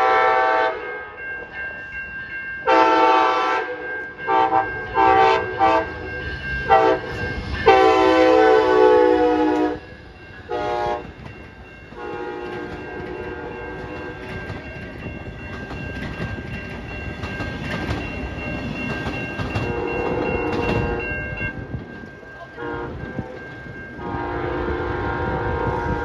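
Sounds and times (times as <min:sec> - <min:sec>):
locomotive horn blasts: 0:00.0 - 0:00.9, 0:02.7 - 0:06.1, 0:06.7 - 0:09.8, 0:10.5 - 0:11.1, 0:12.0 - 0:14.2, 0:19.6 - 0:21.1, 0:22.6 - 0:23.3, 0:24.0 - 0:26.0
crossing warning bell ringing: 0:00.0 - 0:26.0
train wheels clattering: 0:04.2 - 0:24.8.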